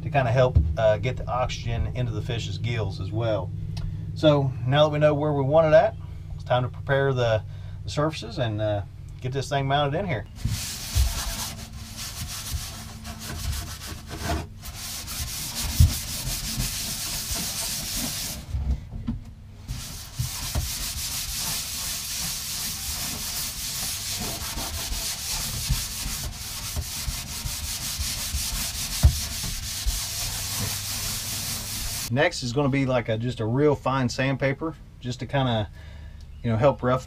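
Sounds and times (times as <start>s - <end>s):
sandpaper rubbing: 10.4s - 18.5s, 19.7s - 32.1s.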